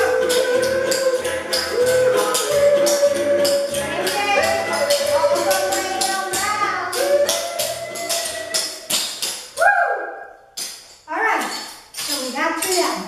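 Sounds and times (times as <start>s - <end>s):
song with singing: 0.0s - 9.6s.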